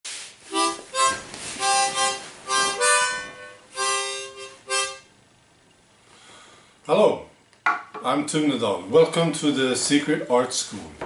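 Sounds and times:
harmonica playing chords: 0.5s - 5.2s.

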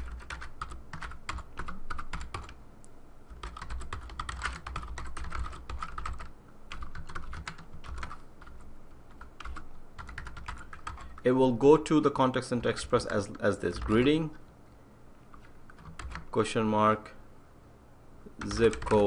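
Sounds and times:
typing on computer keyboard: 0.0s - 2.6s, 3.3s - 11.2s, 15.3s - 16.3s, 18.4s - 19.0s.

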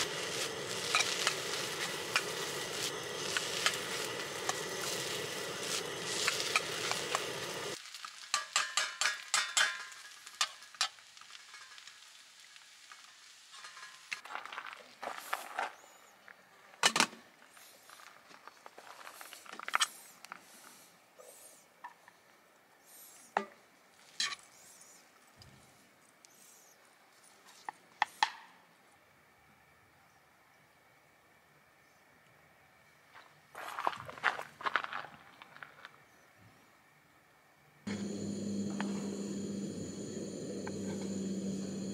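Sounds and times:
utensils clinking and scraping wok: 0.0s - 7.2s, 8.4s - 11.9s, 13.5s - 14.2s
rice sizzling in a wok: 0.0s - 14.2s, 37.9s - 41.9s.

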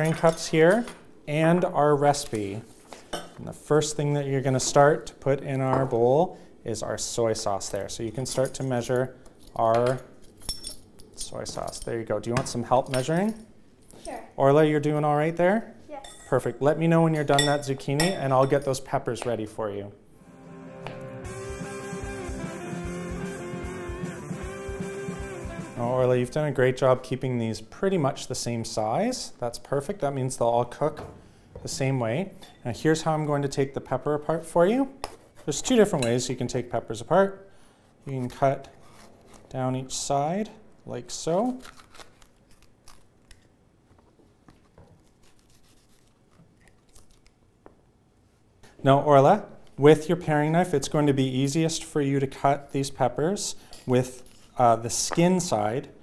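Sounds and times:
background guitar music: 20.2s - 26.0s.

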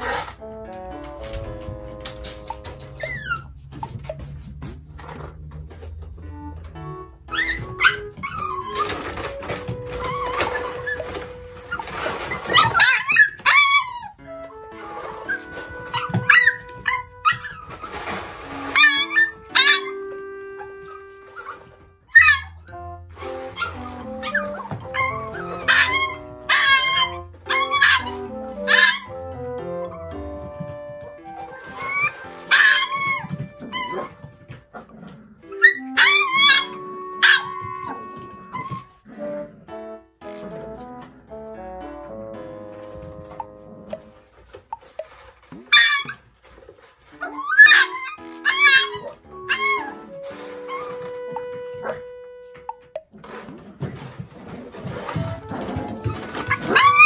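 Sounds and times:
light background music: 0.0s - 57.0s
puppy yelping shrilly: 3.0s - 4.2s, 7.3s - 9.3s, 9.9s - 14.2s, 14.8s - 18.0s, 18.7s - 29.2s, 31.6s - 34.2s, 35.5s - 39.0s, 45.6s - 46.3s, 47.2s - 51.1s, 56.0s - 57.0s.

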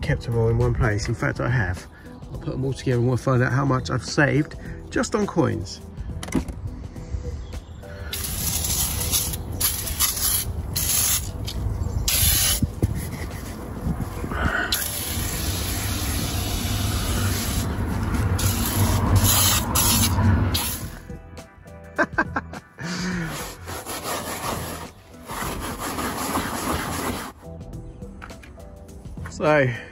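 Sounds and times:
aerosol spray hissing: 8.0s - 11.3s, 12.1s - 12.7s, 14.7s - 17.8s, 18.4s - 21.0s.

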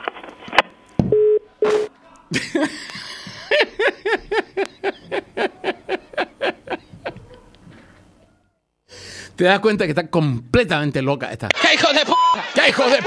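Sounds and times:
telephone busy tone beeps: 1.1s - 1.9s
person laughing: 2.3s - 7.5s.

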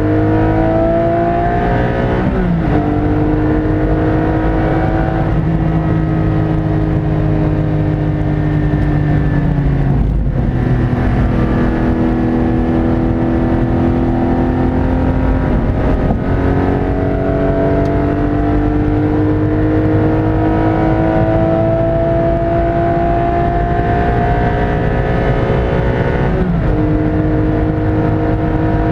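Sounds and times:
car engine accelerating: 0.0s - 28.9s
road noise rumble: 0.0s - 28.9s.

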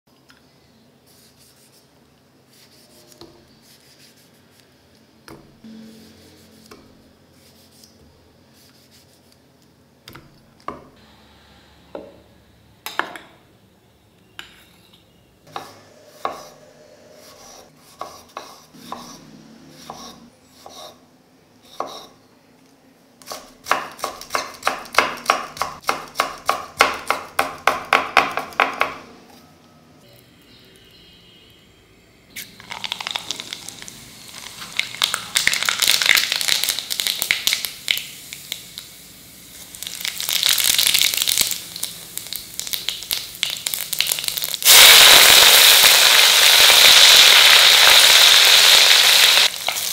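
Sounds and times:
knife chopping on cutting board: 17.4s - 19.2s, 23.2s - 29.0s.

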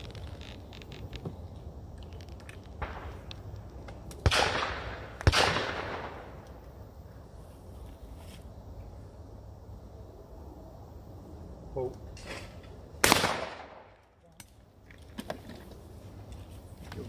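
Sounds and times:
shotgun shots with echo: 4.2s - 6.3s, 13.0s - 13.9s.

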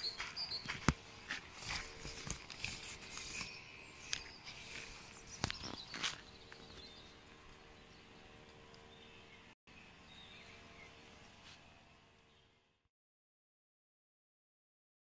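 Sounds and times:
tent fabric rustling: 1.3s - 6.1s.

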